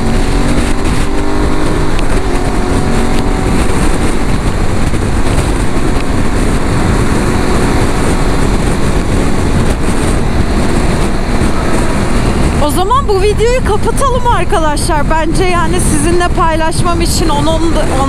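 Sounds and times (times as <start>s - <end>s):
motorcycle engine running: 0.0s - 18.0s
wind noise on microphone: 0.0s - 18.0s.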